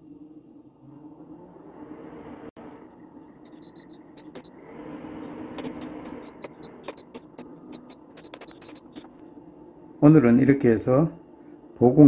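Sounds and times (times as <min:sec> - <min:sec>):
fan motor hum: 0:00.0 - 0:12.0
short high beeps: 0:03.5 - 0:04.5.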